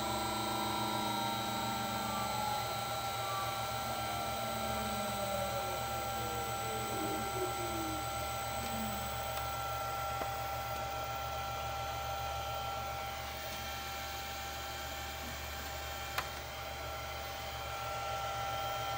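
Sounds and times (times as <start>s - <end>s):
thin high whining tones: 0.0s - 9.2s
electrical hum and fan noise: 0.0s - 18.9s.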